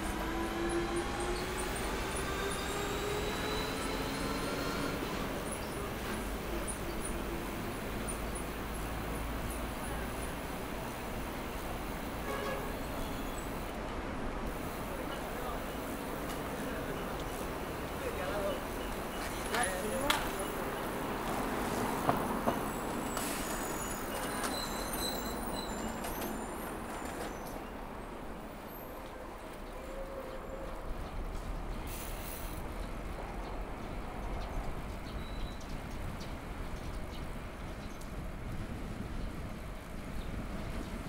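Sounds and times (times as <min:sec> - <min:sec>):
road traffic noise: 0:00.0 - 0:41.0
wind rumble on microphone: 0:33.1 - 0:41.0.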